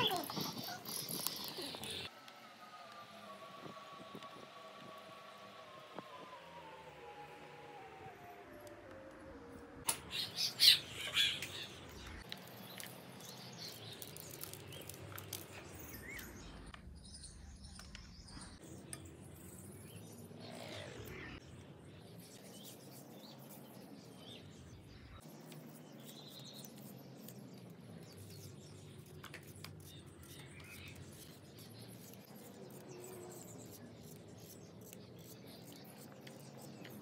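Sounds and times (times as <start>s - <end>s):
bird chirping: 9.9s - 37.0s.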